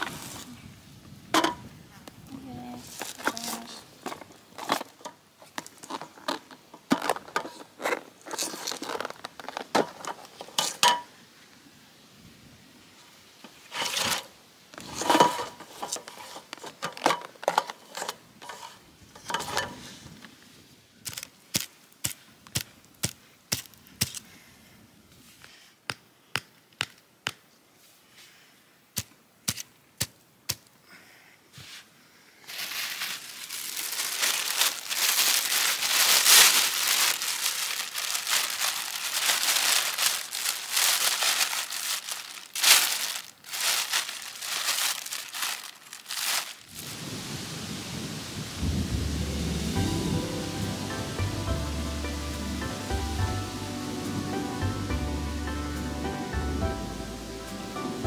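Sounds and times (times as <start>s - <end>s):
plastic bag crinkling: 2.9s - 11.0s, 32.4s - 46.9s
plastic containers clattering: 3.0s - 11.1s, 13.7s - 19.8s, 32.6s - 46.7s.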